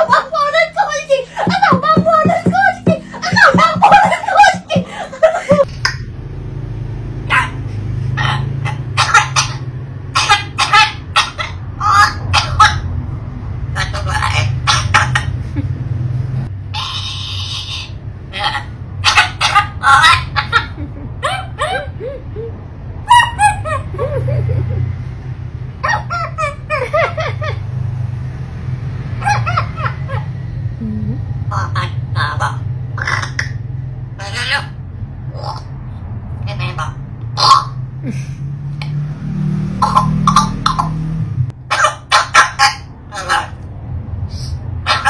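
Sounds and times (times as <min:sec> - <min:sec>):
parrot calling: 0:00.0 - 0:05.7, 0:07.2 - 0:13.0, 0:13.7 - 0:15.4, 0:16.6 - 0:24.1, 0:25.8 - 0:27.3, 0:29.2 - 0:30.4, 0:31.5 - 0:37.8, 0:39.7 - 0:43.7, 0:44.3 - 0:45.0.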